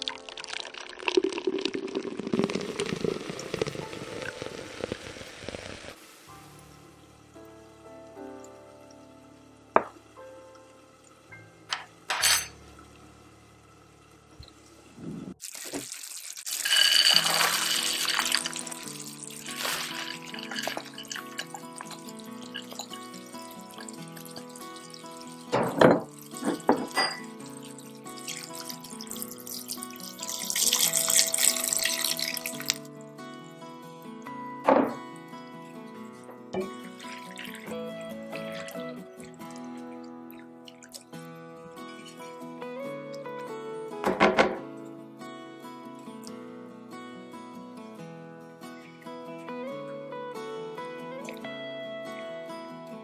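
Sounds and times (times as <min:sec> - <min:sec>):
curry bubbling in pot: 0:00.0 - 0:06.0
water pouring into a pan: 0:00.0 - 0:06.6, 0:15.4 - 0:32.9, 0:36.6 - 0:42.5
soft background music: 0:02.4 - 0:05.1, 0:06.0 - 0:15.0, 0:17.2 - 0:53.0
music with sustained notes: 0:06.3 - 0:11.7, 0:27.2 - 0:40.4.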